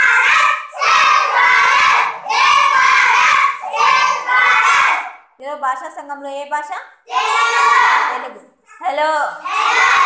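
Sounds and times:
children chanting in unison: 0.0s - 5.2s, 7.1s - 8.2s, 9.3s - 10.0s.

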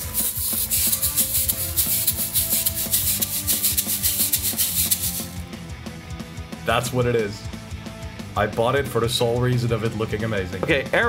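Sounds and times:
shaker rattling: 0.0s - 5.4s
synth-pop backing music: 0.0s - 11.0s.

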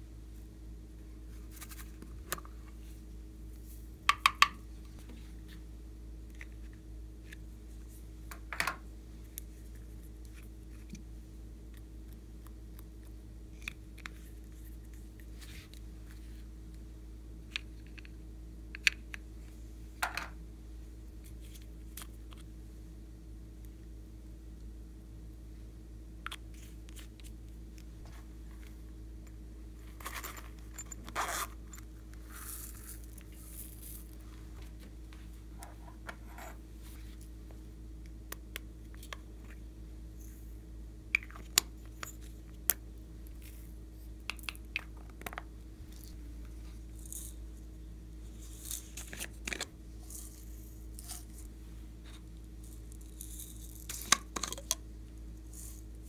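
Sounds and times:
steady low hum: 0.0s - 56.0s
plastic containers clicking and tapping: 4.1s - 4.6s.

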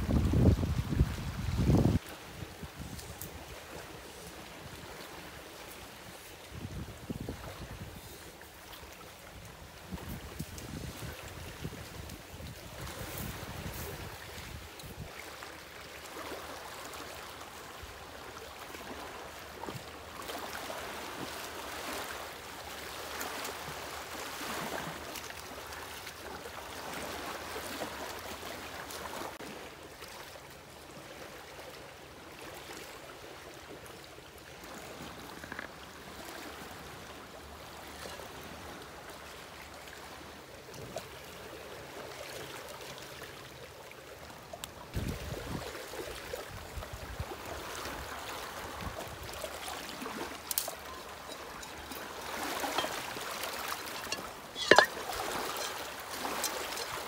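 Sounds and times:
flowing water rushing: 0.0s - 57.0s.

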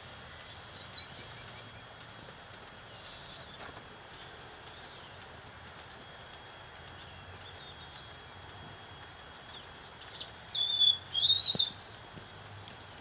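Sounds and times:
steady background hiss: 0.0s - 13.0s
songbird calling: 0.2s - 1.9s, 6.0s - 12.0s.

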